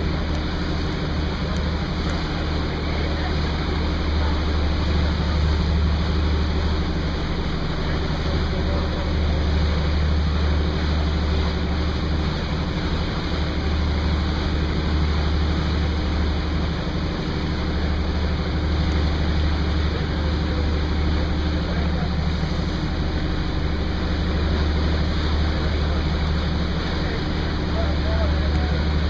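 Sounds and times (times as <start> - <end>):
boat engine droning: 0.0 - 29.0
wind and water rushing: 0.0 - 29.0.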